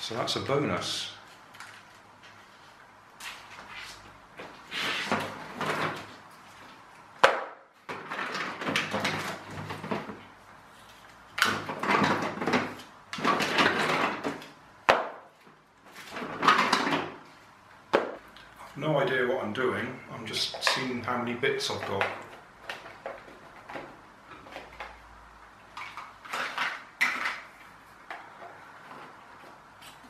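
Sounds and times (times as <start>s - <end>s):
plastic track pieces clattering: 11.4s - 14.4s.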